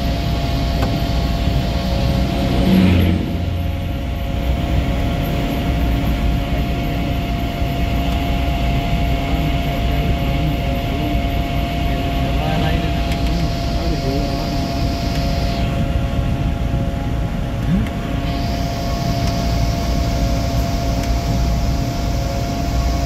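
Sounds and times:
vehicle engine and road noise: 0:00.7 - 0:11.1.

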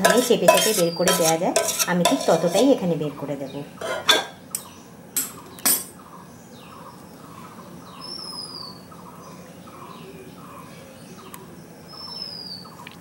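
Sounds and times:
steel ladle clinking on strainer: 0:00.0 - 0:02.6.

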